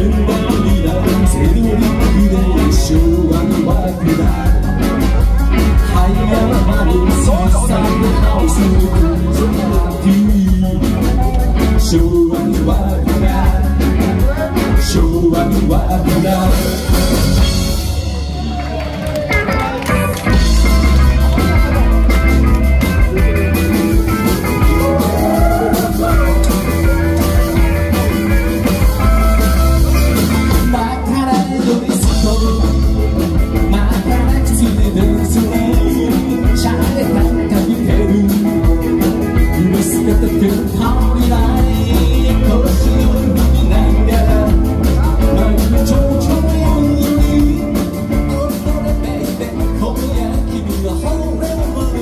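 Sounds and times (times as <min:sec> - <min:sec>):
man singing into a microphone: 0:00.0 - 0:17.6, 0:30.2 - 0:52.0
live band playing: 0:00.0 - 0:52.0.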